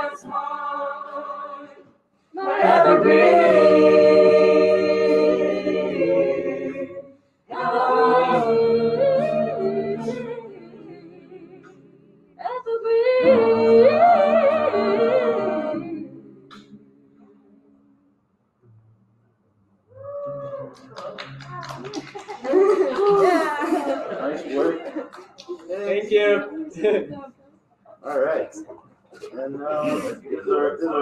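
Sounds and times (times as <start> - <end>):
a cappella group singing: 0.0 - 16.8.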